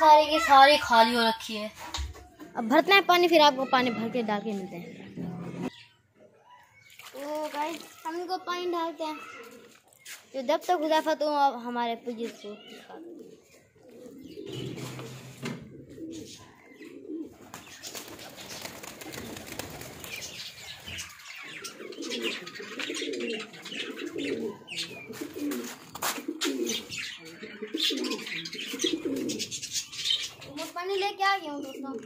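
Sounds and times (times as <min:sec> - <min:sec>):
cage birds chirping: 0:03.1 - 0:07.0, 0:11.9 - 0:32.0
pigeons cooing: 0:12.6 - 0:30.8.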